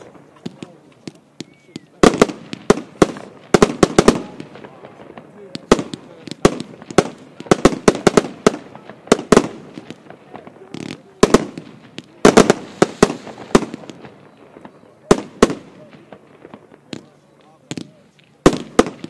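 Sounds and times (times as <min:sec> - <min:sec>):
firework bangs: 0:00.0 - 0:19.0.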